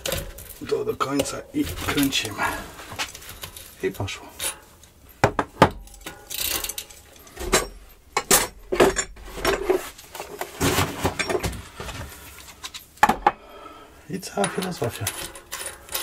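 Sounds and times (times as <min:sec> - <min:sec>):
metal clicks and clinks: 0:05.8 - 0:09.2, 0:14.4 - 0:16.0.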